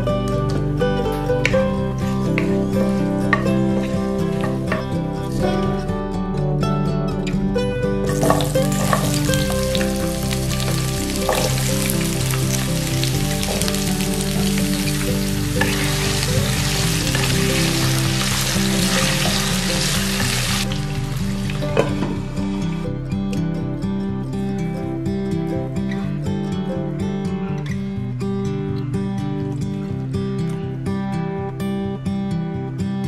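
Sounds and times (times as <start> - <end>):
soft music: 0.0 - 33.0
oil sizzling in frying pan: 8.1 - 22.0.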